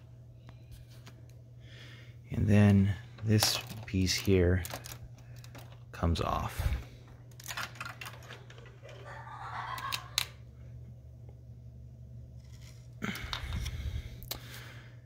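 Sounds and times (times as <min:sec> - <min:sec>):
plastic bricks clicking and rattling: 0:03.4 - 0:05.9, 0:07.3 - 0:09.0.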